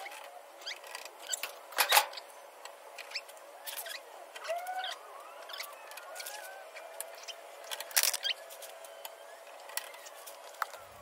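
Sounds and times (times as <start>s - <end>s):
screws clicking and squeaking: 0.0s - 2.3s, 3.0s - 8.7s.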